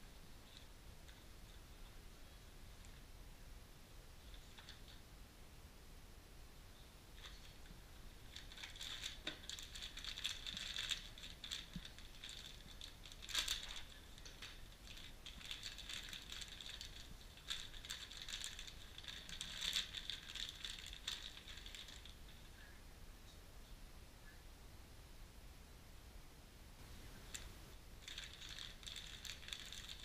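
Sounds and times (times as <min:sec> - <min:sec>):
plastic bags crinkling: 0:07.2 - 0:22.4, 0:28.0 - 0:30.0.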